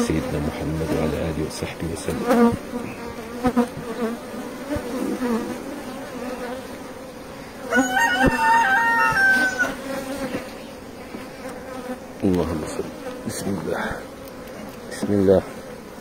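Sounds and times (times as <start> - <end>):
bees buzzing: 0.0 - 16.0
rooster crowing: 7.7 - 10.0.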